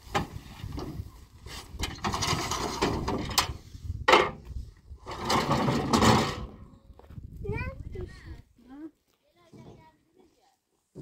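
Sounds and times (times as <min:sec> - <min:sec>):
firewood shifting on metal truck bed: 0:00.0 - 0:06.6.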